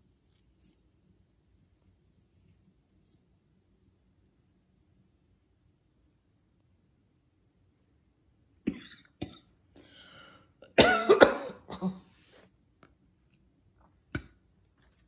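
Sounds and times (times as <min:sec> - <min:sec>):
woman coughing: 0:08.7 - 0:09.4, 0:10.7 - 0:12.1.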